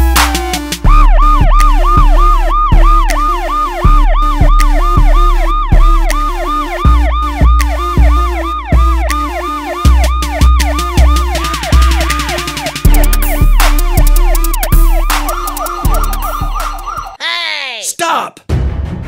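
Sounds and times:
music with pulsing bass: 0:00.0 - 0:17.2
yelping police siren: 0:00.0 - 0:17.4.

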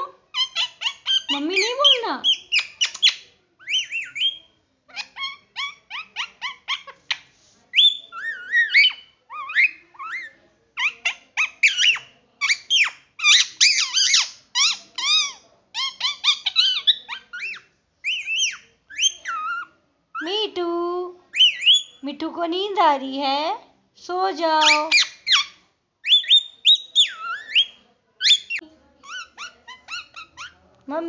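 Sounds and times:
parakeet chirping and whistling: 0:00.4 - 0:04.4, 0:15.8 - 0:19.5, 0:21.4 - 0:22.0, 0:24.6 - 0:28.6.

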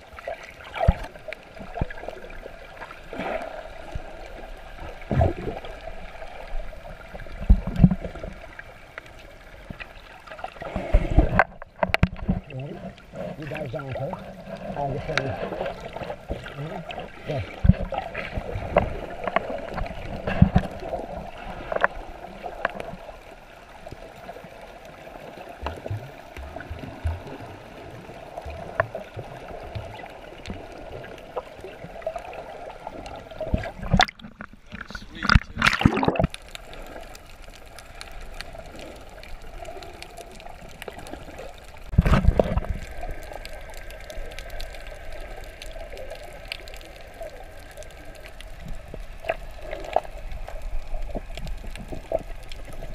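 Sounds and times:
underwater gurgling wash: 0:00.0 - 0:52.9
small underwater knocks and thumps: 0:00.1 - 0:24.0, 0:25.3 - 0:52.9.

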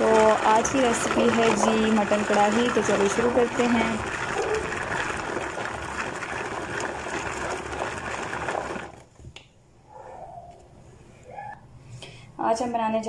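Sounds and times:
electric food chopper running: 0:00.0 - 0:09.0.

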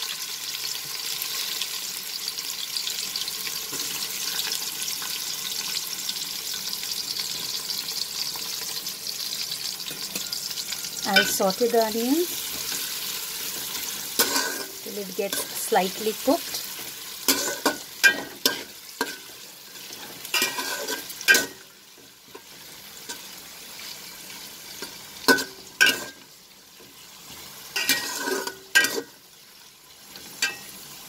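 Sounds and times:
onions sizzling in oil: 0:00.0 - 0:31.0
spatula scraping metal pot: 0:12.3 - 0:21.6, 0:27.8 - 0:29.2.

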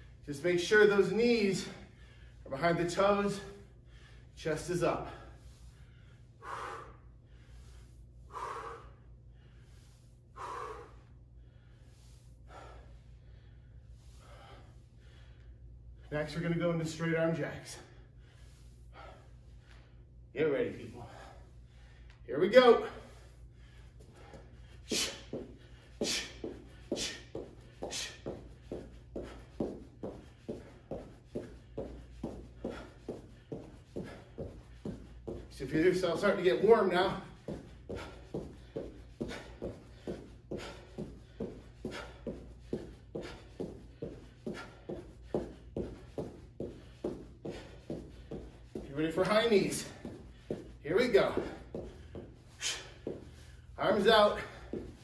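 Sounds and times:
feet thudding on rubber floor: 0:24.0 - 0:55.0.

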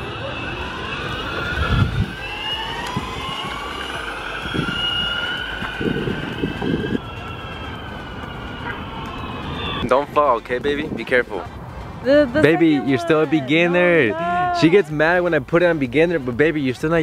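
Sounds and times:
electric motors whining: 0:00.0 - 0:09.8
low rumbles: 0:00.0 - 0:15.5.

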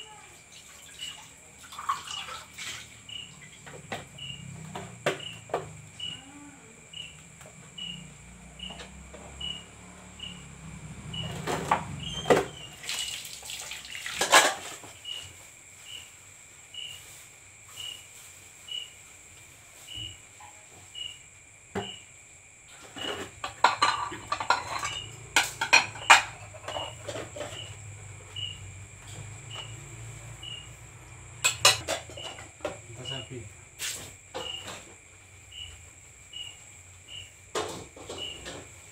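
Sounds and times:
crickets shrilling: 0:00.0 - 0:38.9
dishes clattering: 0:14.2 - 0:14.9, 0:22.8 - 0:27.8, 0:31.4 - 0:32.8.

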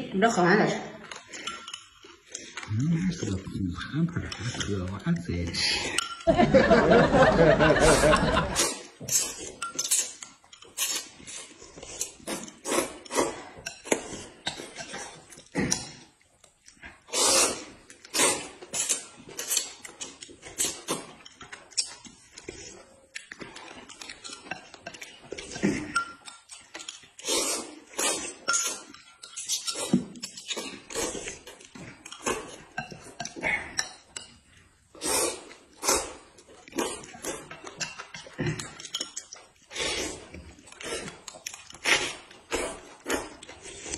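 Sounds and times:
noodles slurped and chewed: 0:01.0 - 0:06.0, 0:07.8 - 0:43.9
metal spoon clinking on glass: 0:01.3 - 0:02.1, 0:05.8 - 0:06.3, 0:09.6 - 0:10.8, 0:25.9 - 0:27.1, 0:28.4 - 0:30.6, 0:37.7 - 0:39.4.

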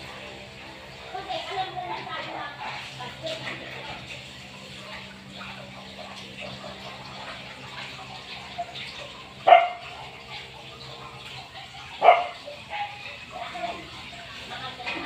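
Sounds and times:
dog barking: 0:09.4 - 0:10.0, 0:11.9 - 0:13.8.

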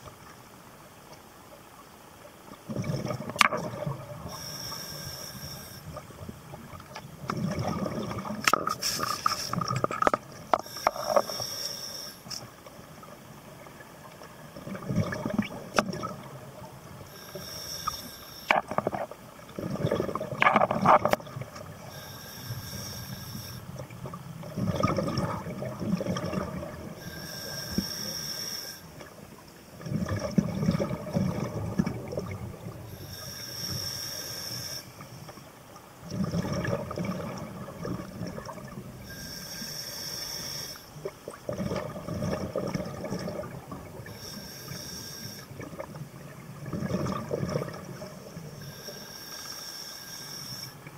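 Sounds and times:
diver inhaling through regulator: 0:04.2 - 0:06.0, 0:10.5 - 0:12.5, 0:17.0 - 0:18.7, 0:21.9 - 0:23.7, 0:27.0 - 0:29.0, 0:32.9 - 0:35.1, 0:39.0 - 0:41.0, 0:44.0 - 0:45.6, 0:48.6 - 0:50.8
bubbling exhale underwater: 0:07.3 - 0:11.3, 0:14.7 - 0:16.4, 0:18.5 - 0:22.0, 0:24.4 - 0:27.7, 0:29.8 - 0:33.1, 0:36.0 - 0:39.3, 0:41.4 - 0:44.3, 0:45.5 - 0:48.9.

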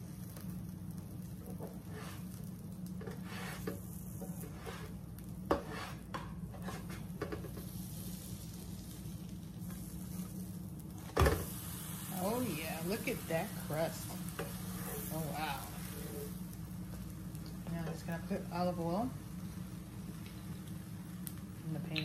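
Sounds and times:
butter sizzling in a pan: 0:00.0 - 0:22.0
low steady hum: 0:00.0 - 0:22.0
spatula scraping and tapping pan: 0:03.0 - 0:07.8, 0:14.3 - 0:15.1.

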